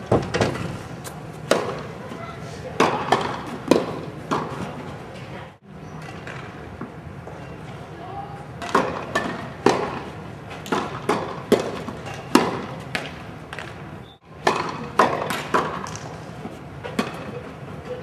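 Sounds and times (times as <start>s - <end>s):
tennis balls hit with rackets: 0.1s - 2.0s, 2.8s - 4.8s, 8.6s - 17.5s
tennis balls bouncing on court: 1.4s - 2.0s, 2.8s - 4.8s, 8.6s - 13.8s, 14.4s - 16.1s.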